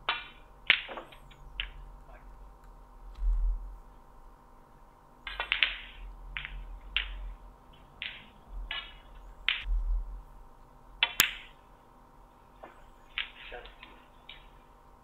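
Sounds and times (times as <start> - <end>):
snooker balls clicking: 0.0 - 2.3, 5.3 - 9.7.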